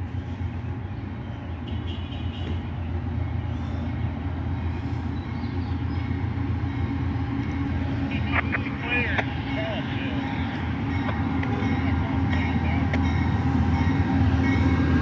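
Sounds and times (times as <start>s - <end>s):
diesel locomotive rumble: 0.0s - 15.0s
locomotive bell ringing: 5.9s - 15.0s.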